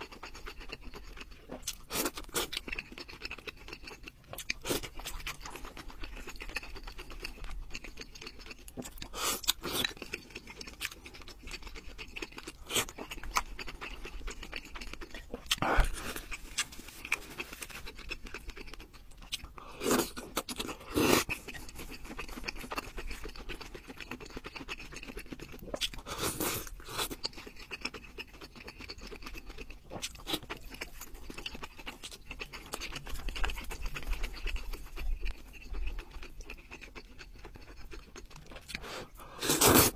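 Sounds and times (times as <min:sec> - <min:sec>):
chewing: 0:00.0 - 0:39.9
slurping noodles: 0:19.7 - 0:21.8, 0:38.7 - 0:39.9.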